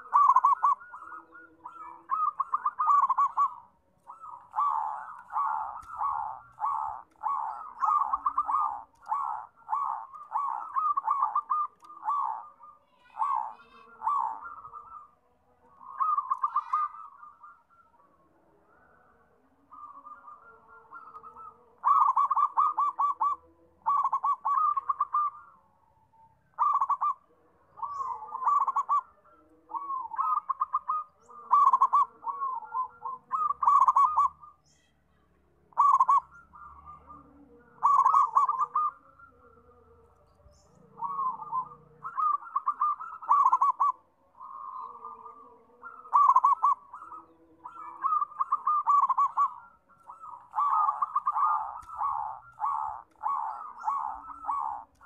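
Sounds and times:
dove cooing: 0.0 - 34.9, 35.6 - 55.0.

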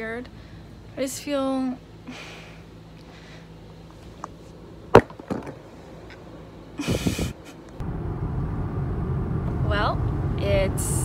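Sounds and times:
road noise inside car: 6.3 - 11.0.

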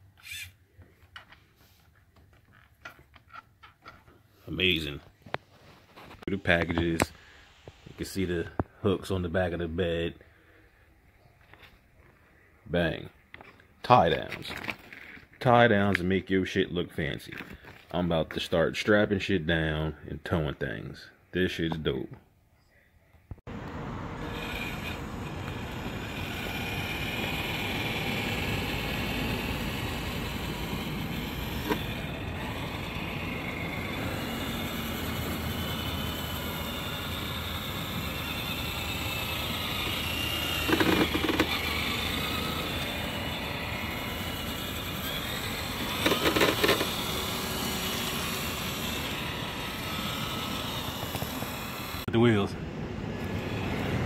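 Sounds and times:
electric motor whine: 23.5 - 54.0
tyres rolling on asphalt: 23.5 - 54.0.

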